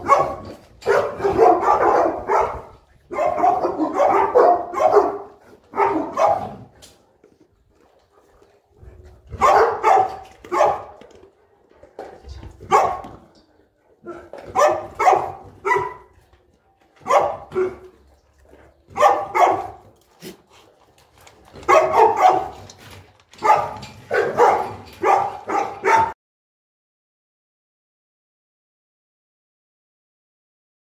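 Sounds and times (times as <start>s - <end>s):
dogs barking: 0.0s - 6.7s, 9.3s - 11.2s, 12.6s - 13.3s, 14.0s - 16.2s, 17.0s - 18.1s, 18.9s - 20.3s, 21.5s - 22.8s, 23.4s - 26.2s.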